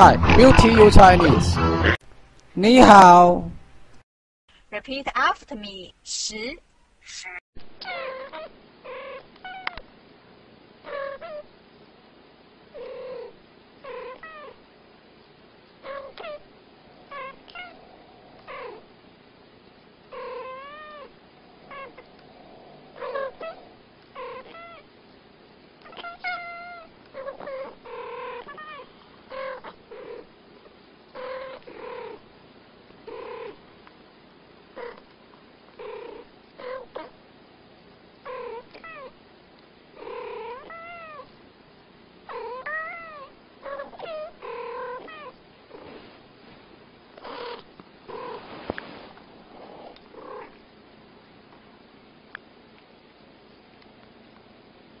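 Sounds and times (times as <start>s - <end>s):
cats meowing and chirping: 7.3s - 9.8s, 23.0s - 24.9s, 25.8s - 29.8s, 40.1s - 41.3s, 42.3s - 45.4s.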